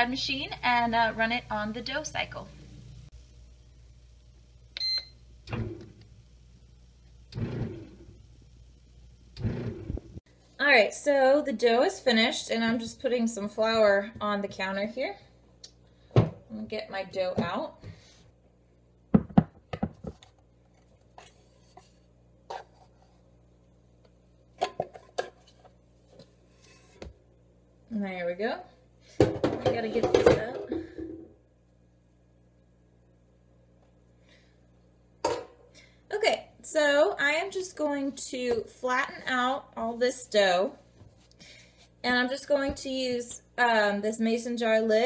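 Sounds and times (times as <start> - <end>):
low mechanical sounds: 2.6 - 10.2.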